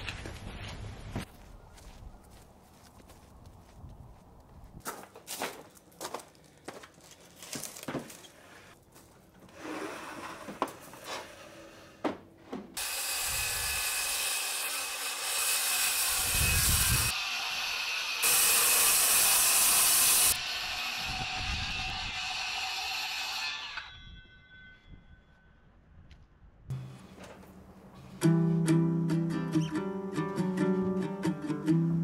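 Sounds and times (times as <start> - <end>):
footsteps: 0.0 - 9.5
circular saw cutting wood: 12.8 - 24.4.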